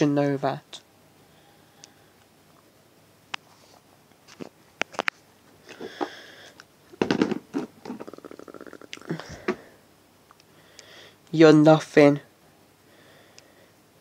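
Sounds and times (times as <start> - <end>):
plastic clatter of knocks: 7.0 - 8.1.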